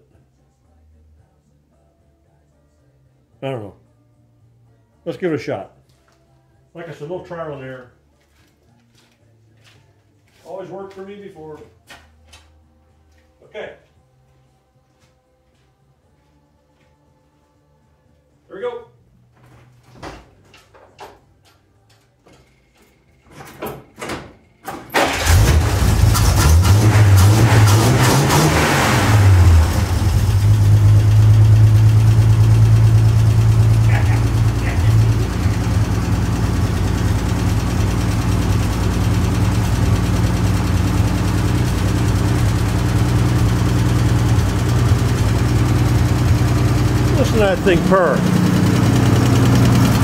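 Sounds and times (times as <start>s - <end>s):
truck engine starting and running: 24.6s - 50.0s.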